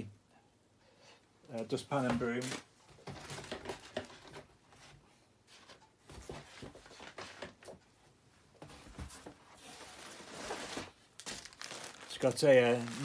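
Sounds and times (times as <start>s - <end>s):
rustling packaged goods in box: 9.6s - 13.0s.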